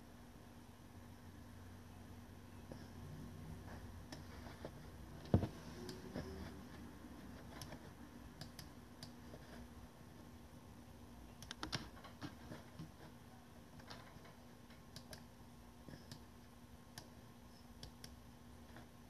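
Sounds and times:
faint steady hum: 0.0 - 19.0
keyboard typing clicks: 8.4 - 9.2, 11.3 - 12.1, 14.8 - 15.3.

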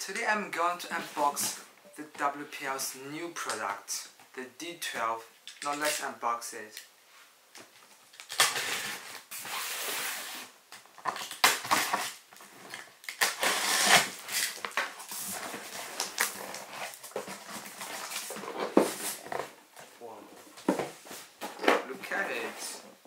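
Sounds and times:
box cutter slicing tape: 13.1 - 14.6
cardboard rustling: 14.8 - 23.0.

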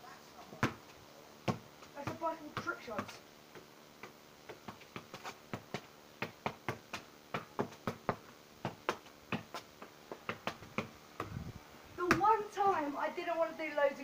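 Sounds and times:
football taps: 0.6 - 0.8, 1.5 - 3.2, 4.0 - 11.4, 12.0 - 12.4.

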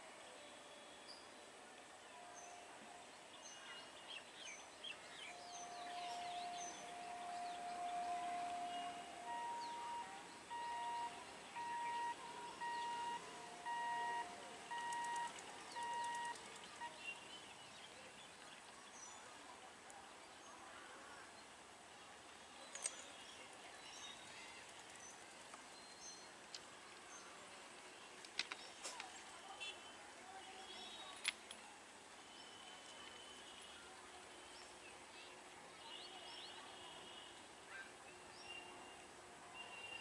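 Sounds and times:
bird chirps: 4.5 - 17.4
distant horn two-pitch toots: 5.3 - 17.0.

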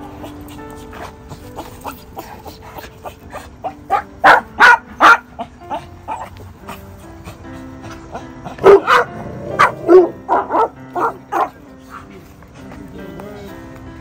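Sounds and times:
background music: 0.0 - 14.0
small dog barking: 3.6 - 6.3, 8.6 - 11.6.

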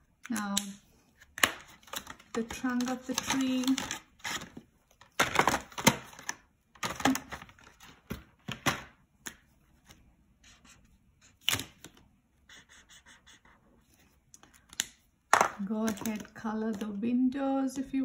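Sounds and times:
marker strokes on paper: 10.4 - 11.4, 12.4 - 14.0.

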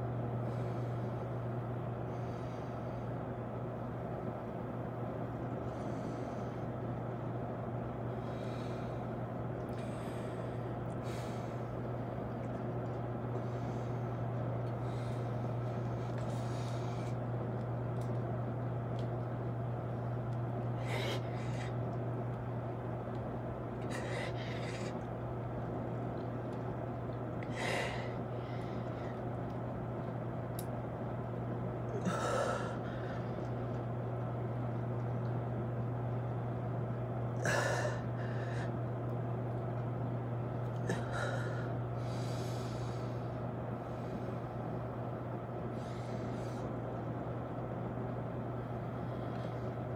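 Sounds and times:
steady low hum: 0.0 - 49.9
man breathing hard: 27.4 - 29.2, 32.0 - 33.5, 37.4 - 38.8, 40.8 - 44.4.

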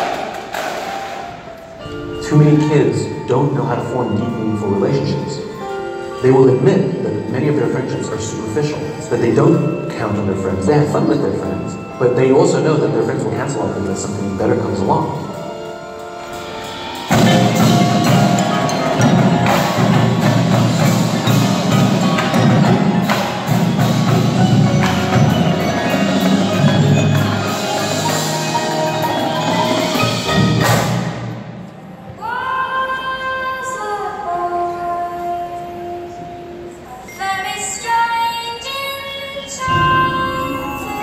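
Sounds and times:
marching drumline: 0.0 - 1.5, 17.0 - 31.5
marimbas and vibraphones: 1.2 - 31.7, 39.6 - 41.0.

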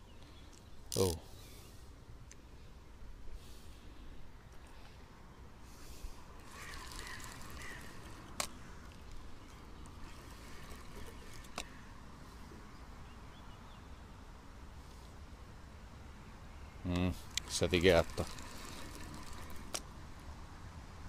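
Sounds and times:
bird calling faintly: 3.4 - 14.0
fishing reel clicks: 6.4 - 11.8, 17.1 - 19.9.

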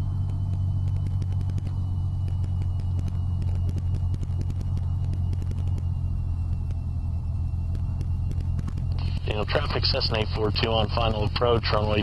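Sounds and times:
airplane engine droning: 0.0 - 12.0.

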